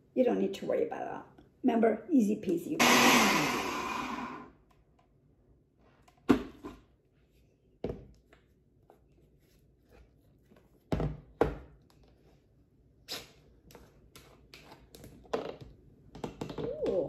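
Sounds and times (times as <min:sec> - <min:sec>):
blender motor spinning down: 0:02.8 - 0:04.5.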